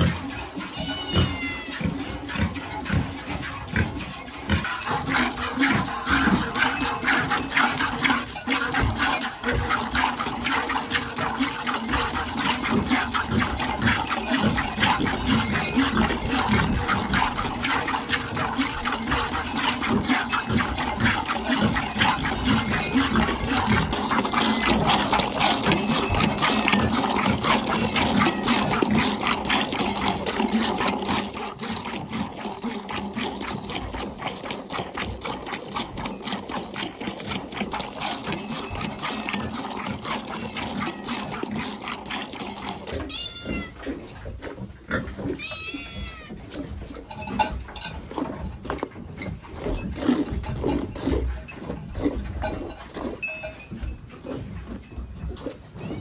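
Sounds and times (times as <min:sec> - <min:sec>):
milk squirting into metal pail: 0:00.0 - 0:55.6
cat meowing: 0:00.7 - 0:01.8, 0:43.1 - 0:43.8, 0:45.4 - 0:46.4.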